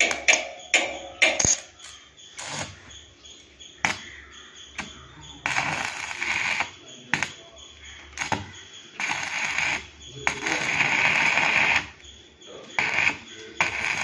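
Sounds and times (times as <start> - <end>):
welding arc crackles: 0.0 - 1.8, 2.4 - 2.9, 3.8 - 4.1, 4.7 - 12.1, 12.7 - 14.0
welding arc sizzling: 0.0 - 3.0, 3.8 - 4.1, 4.8 - 7.4, 8.1 - 12.0, 12.7 - 14.0.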